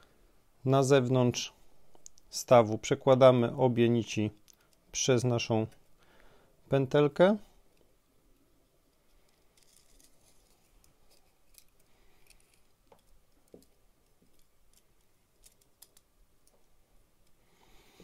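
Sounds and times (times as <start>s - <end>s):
light clicks and rustles: 7.7s - 17.4s.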